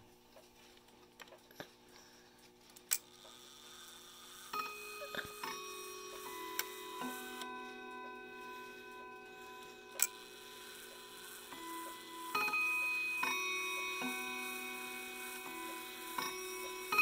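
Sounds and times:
clock movement clicks: 0:02.8 - 0:17.0
clock chime rods ringing: 0:04.5 - 0:17.0.

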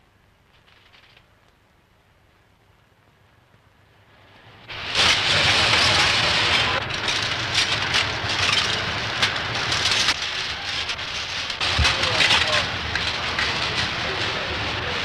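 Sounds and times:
typesetting machinery clattering: 0:04.7 - 0:15.0.

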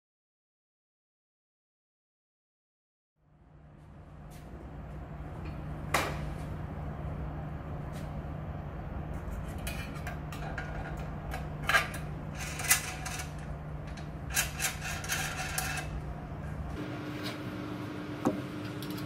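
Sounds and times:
steady low hum: 0:03.2 - 0:19.0
sheet metal scraping on steel: 0:14.4 - 0:16.0.

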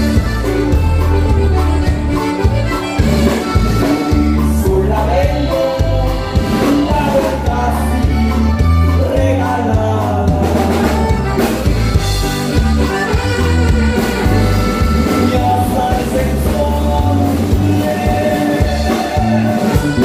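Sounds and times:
band playing dance music: 0:00.0 - 0:20.0.

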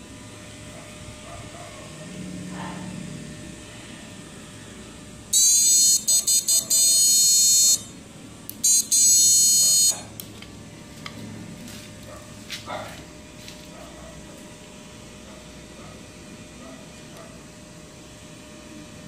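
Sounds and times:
high-pitched electronic buzz: 0:03.0 - 0:10.1.

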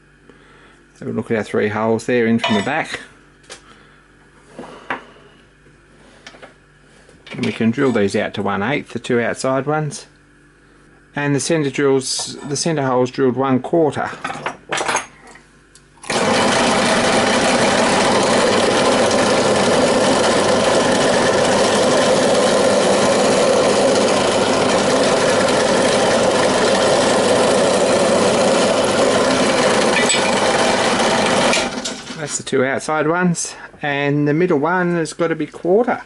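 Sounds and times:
drill bit drilling through metal: 0:16.0 - 0:32.1
drill press motor running: 0:16.0 - 0:32.2.

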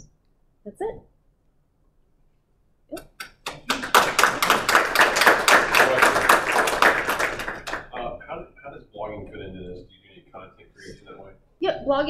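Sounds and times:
audience applauding: 0:03.2 - 0:08.4.

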